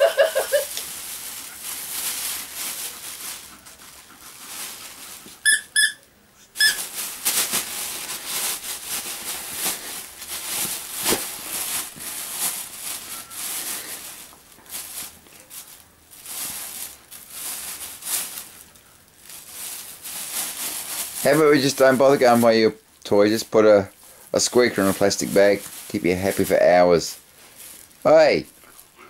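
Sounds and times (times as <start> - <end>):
plastic bag rustling: 0.0 - 5.9, 6.5 - 29.0
toy squeaker squeaks: 5.4 - 6.8.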